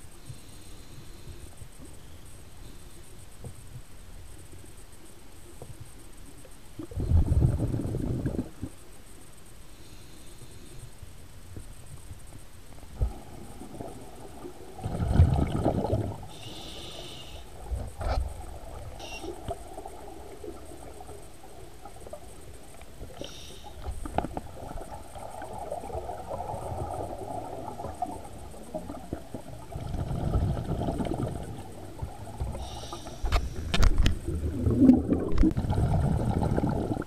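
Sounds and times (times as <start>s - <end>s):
scuba diver breathing bubbles: 6.8s - 8.7s, 13.0s - 19.6s, 23.1s - 37.0s
short hisses: 16.3s - 17.5s, 32.6s - 33.8s.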